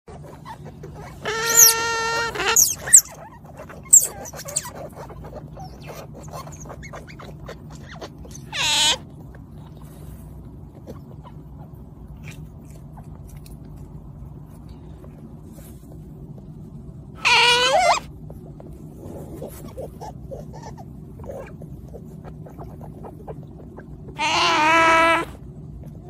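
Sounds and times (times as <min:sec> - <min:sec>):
otters squeaking: 0:00.1 - 0:09.1, 0:17.2 - 0:18.1
soft rustling: 0:13.4 - 0:17.0.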